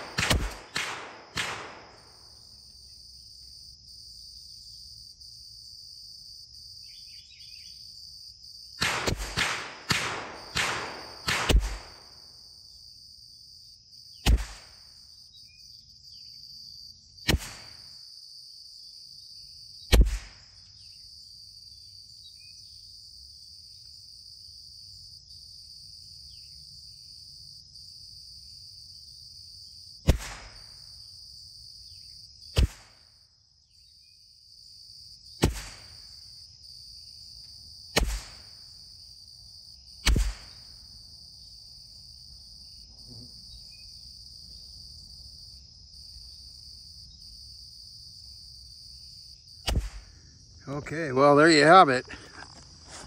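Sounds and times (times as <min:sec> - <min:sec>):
rifle shots cracking: 0:00.0 - 0:02.2, 0:08.8 - 0:12.2, 0:14.3 - 0:14.8, 0:17.3 - 0:17.8, 0:30.1 - 0:30.6, 0:35.4 - 0:35.9, 0:38.0 - 0:38.4, 0:40.1 - 0:40.6
insects chirring: 0:00.0 - 0:53.0.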